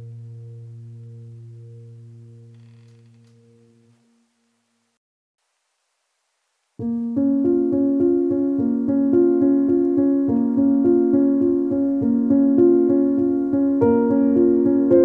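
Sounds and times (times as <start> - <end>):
piano music: 0.0 - 2.6, 6.8 - 15.0.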